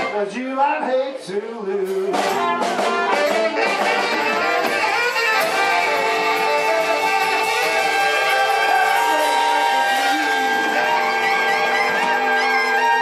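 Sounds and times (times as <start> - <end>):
blues band playing: 0.0 - 13.0
harmonica: 2.8 - 13.0.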